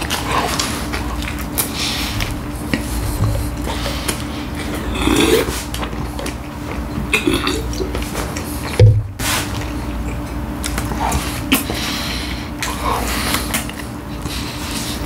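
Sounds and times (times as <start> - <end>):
chewing sandwich: 0.0 - 15.0.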